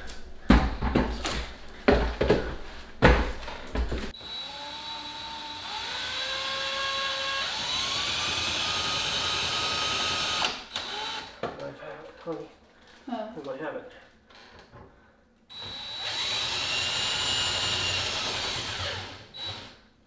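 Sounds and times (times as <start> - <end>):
knocks and thumps: 0.4 - 4.1.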